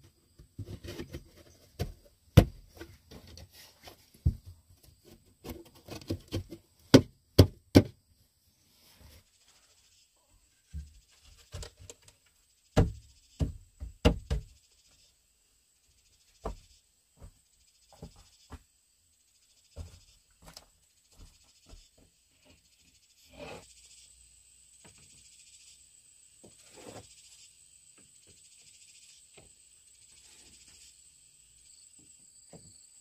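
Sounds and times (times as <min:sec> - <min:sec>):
wooden planks knocking: 0:12.8 - 0:14.5
high-pitched insect drone: 0:19.2 - 0:33.0
short scrape: 0:23.2 - 0:23.9, 0:26.6 - 0:27.4.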